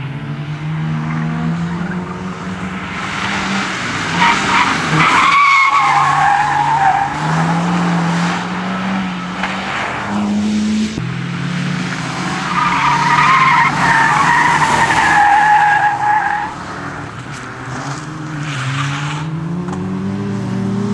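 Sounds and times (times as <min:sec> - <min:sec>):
rally car engine revving: 0:00.0 - 0:20.9
tyres squealing: 0:04.0 - 0:07.4, 0:12.5 - 0:16.6.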